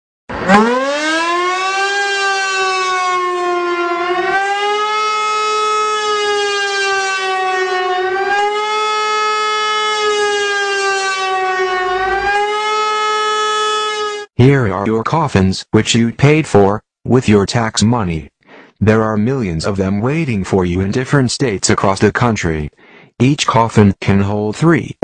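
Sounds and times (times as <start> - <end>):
siren wailing: 0.3 - 14.3.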